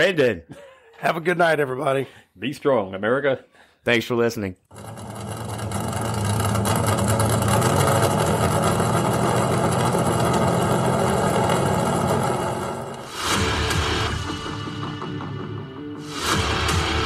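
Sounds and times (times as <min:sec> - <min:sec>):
engine running steadily: 0:04.8 - 0:13.0.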